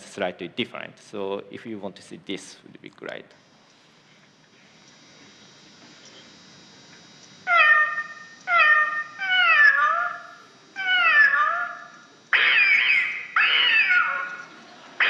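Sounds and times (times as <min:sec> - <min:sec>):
recorded cat meowing alarm: 0:07.5 - 0:14.5.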